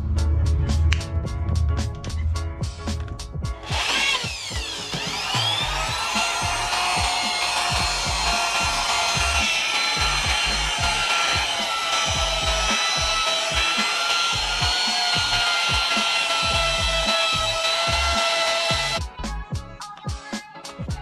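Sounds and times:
background music with beat: 0.0s - 21.0s
power tool whine: 3.6s - 19.0s.

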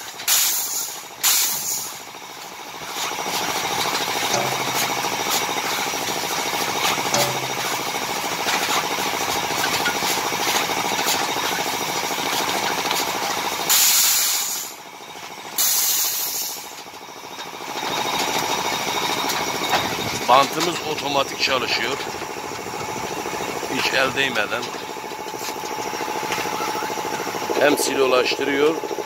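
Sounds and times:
compressed air hisses: 0.3s - 2.0s, 13.7s - 14.8s, 15.6s - 16.7s.

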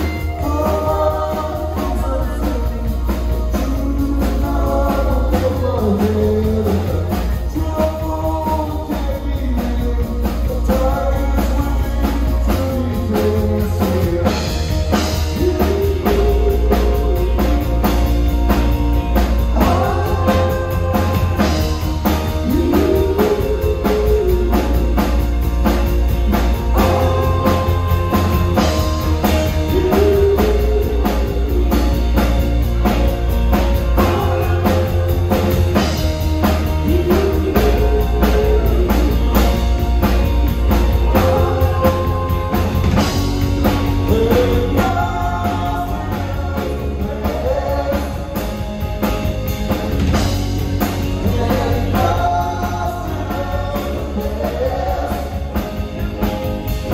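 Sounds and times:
woman singing: 0.0s - 17.8s, 19.5s - 25.1s, 26.5s - 32.2s, 36.8s - 39.7s
bass line: 0.0s - 56.9s
drum kit beat: 0.0s - 56.9s
electric guitar: 0.0s - 56.9s.

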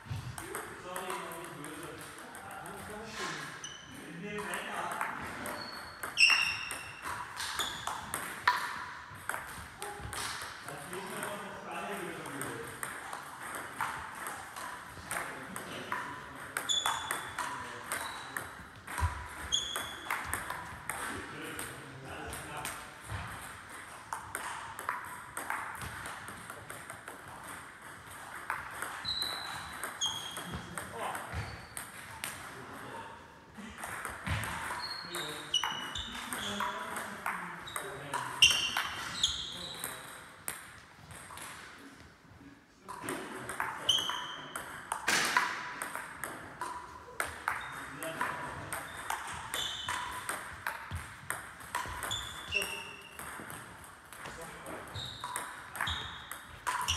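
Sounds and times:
table tennis ball ticking: 54.9s - 56.9s.

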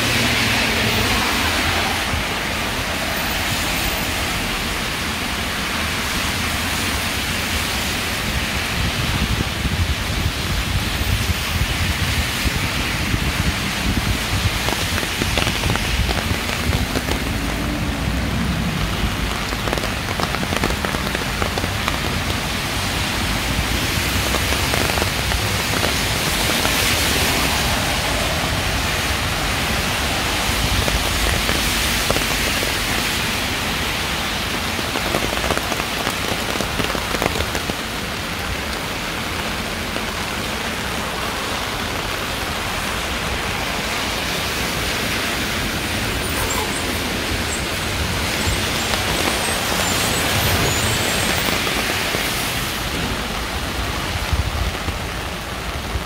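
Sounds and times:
rain splashing on hard surfaces: 0.0s - 56.0s.

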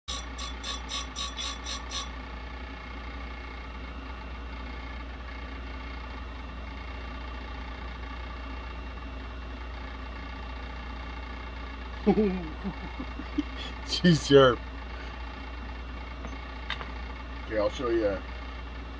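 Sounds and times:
bench grinder motor humming: 0.0s - 2.2s.

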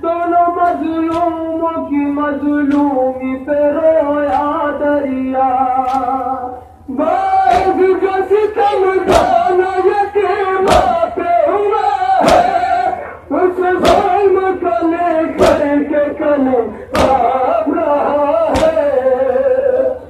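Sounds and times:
men chanting over microphone: 0.0s - 20.0s
chest-beating beats: 15.0s - 16.2s.

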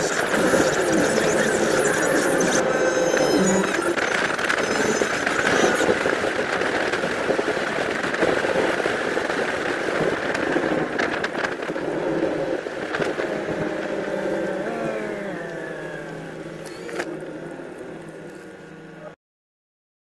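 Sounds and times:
sped-up car road noise hiss: 5.8s - 19.2s.

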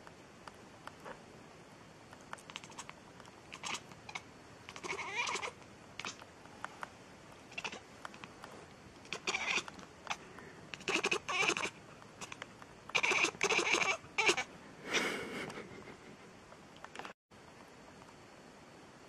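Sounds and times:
cat meowing: 3.6s - 6.2s, 9.1s - 10.2s, 10.8s - 12.4s, 13.0s - 14.5s.

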